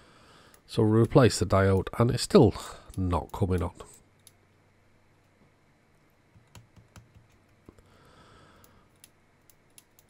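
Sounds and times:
rotary switch clicks: 0:02.9 - 0:04.4, 0:09.0 - 0:10.0.

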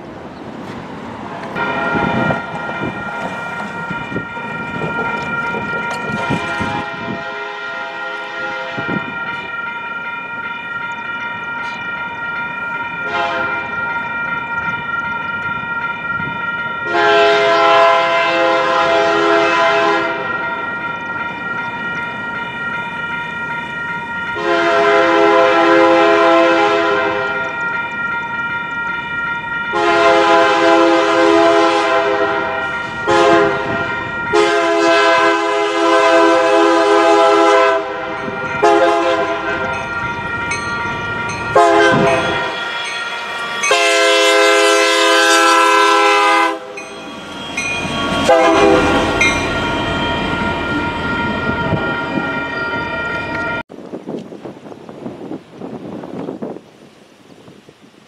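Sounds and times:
train rumbling: 0:00.0 - 0:56.7
train horn blasts: 0:01.6 - 0:05.0, 0:05.9 - 0:09.7, 0:13.0 - 0:13.8, 0:16.8 - 0:20.6, 0:24.3 - 0:27.8, 0:29.7 - 0:40.6, 0:41.2 - 0:52.2.

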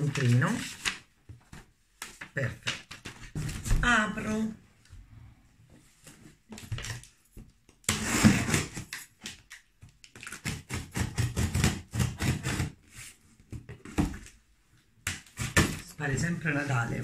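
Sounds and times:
tape and cardboard crackling: 0:06.5 - 0:12.8
scissors cutting packing tape: 0:07.9 - 0:12.7.

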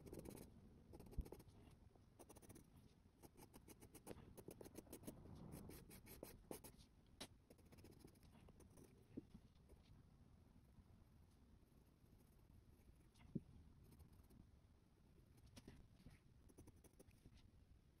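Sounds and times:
pencil scratching on paper: 0:00.0 - 0:06.8, 0:07.5 - 0:09.1, 0:16.5 - 0:17.4.

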